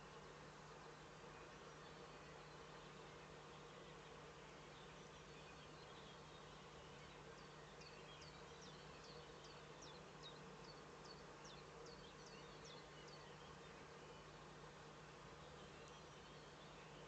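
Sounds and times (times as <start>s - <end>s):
faint distant songbird singing: 0.0s - 17.0s
low electrical hum: 0.0s - 17.0s.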